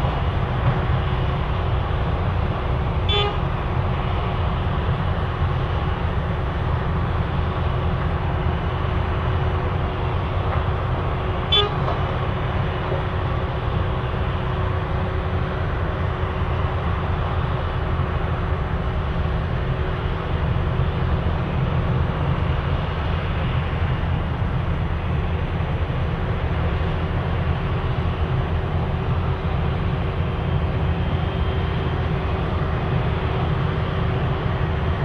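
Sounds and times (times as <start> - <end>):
heavy machinery rumbling: 0.0 - 35.0
short horn toots: 3.1 - 3.4, 11.5 - 11.9.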